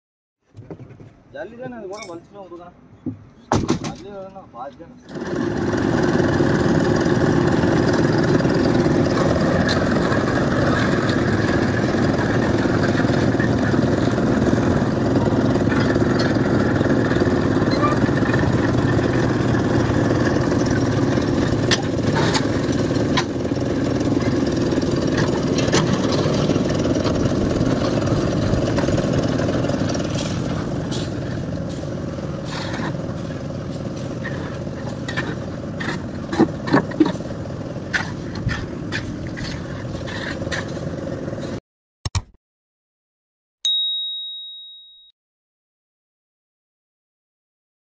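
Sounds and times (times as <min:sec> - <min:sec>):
sharp knocks and clanks: 0:03.0 - 0:04.1
concrete mixer engine running: 0:05.0 - 0:41.6
bucket hoist engine running: 0:05.1 - 0:41.6.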